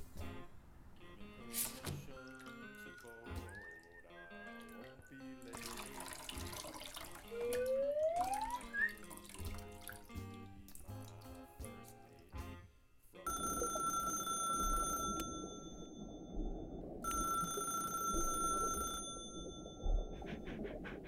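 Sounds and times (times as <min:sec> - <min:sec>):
music: 0:00.0 - 0:13.6
telephone ringing tone: 0:13.3 - 0:16.2, 0:17.0 - 0:19.9.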